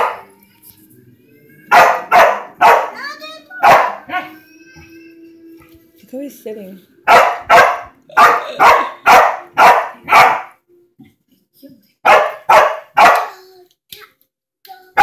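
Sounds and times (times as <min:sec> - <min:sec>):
puppy barking: 0:00.0 - 0:00.3, 0:01.7 - 0:03.0, 0:03.6 - 0:04.4, 0:07.1 - 0:10.6, 0:12.0 - 0:13.4.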